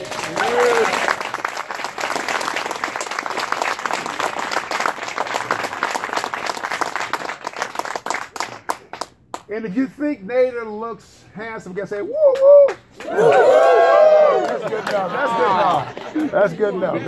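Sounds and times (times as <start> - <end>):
crowd applauding: 0.0 - 9.4, 12.3 - 16.7.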